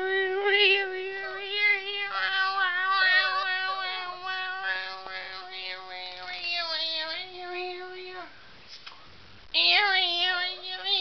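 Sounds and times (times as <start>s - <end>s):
small dog whining: 1.2s - 8.3s.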